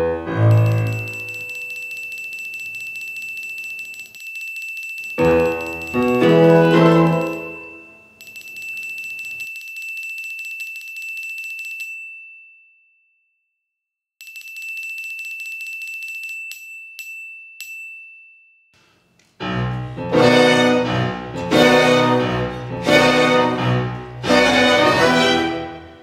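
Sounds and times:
electric bell ringing: 0:00.4 - 0:10.3
orchestra strings: 0:06.2 - 0:07.5, 0:19.4 - 0:26.0.

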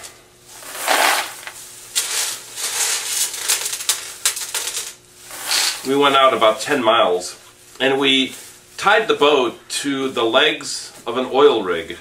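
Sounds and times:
hard candies rattling in a metal pot: 0:00.6 - 0:06.4.

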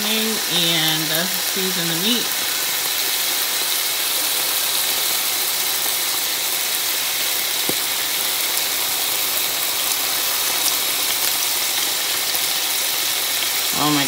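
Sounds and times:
steak sizzling in a pan: 0:00.0 - 0:14.0.

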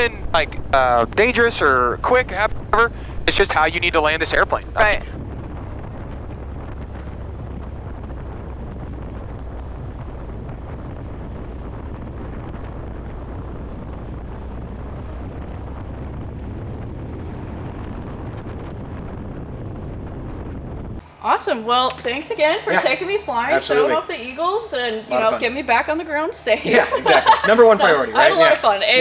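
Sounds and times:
airplane engine droning: 0:00.0 - 0:29.0
wind rumble on microphone: 0:00.0 - 0:29.0.

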